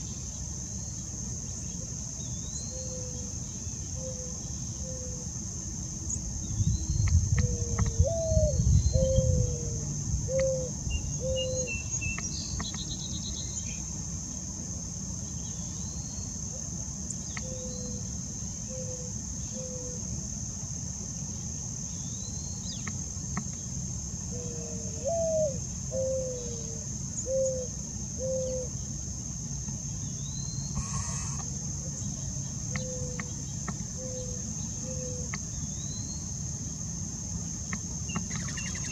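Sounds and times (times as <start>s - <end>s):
high insect trill: 0.0s - 38.9s
mourning dove cooing: 4.0s - 5.3s, 7.4s - 11.9s, 18.6s - 20.1s, 24.3s - 28.8s, 30.7s - 32.1s, 32.7s - 35.4s
bird chirps: 10.3s - 13.8s, 38.1s - 38.9s.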